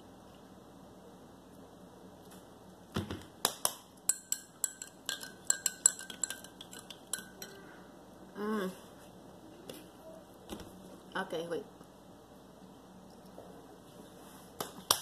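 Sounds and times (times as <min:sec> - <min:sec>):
spoon clinking in ceramic mug: 0:04.1 - 0:07.6.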